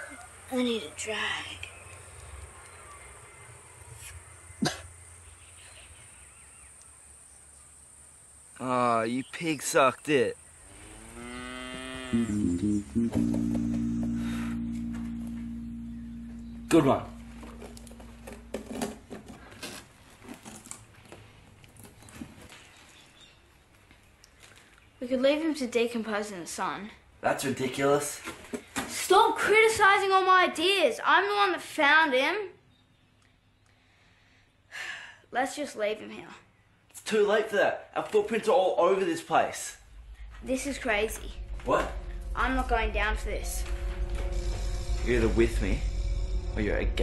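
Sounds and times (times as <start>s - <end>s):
boy coughing: 4.6s - 4.9s
low steady hum: 12.2s - 19.5s.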